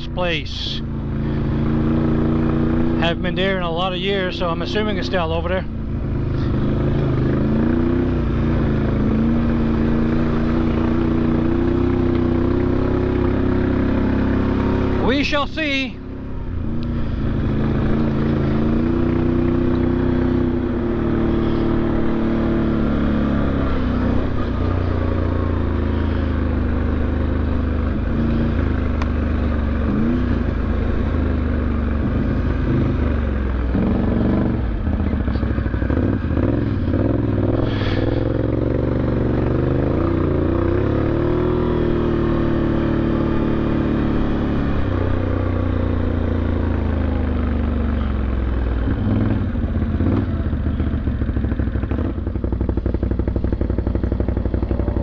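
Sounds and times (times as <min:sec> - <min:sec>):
atv engine running: 0:00.0 - 0:55.0.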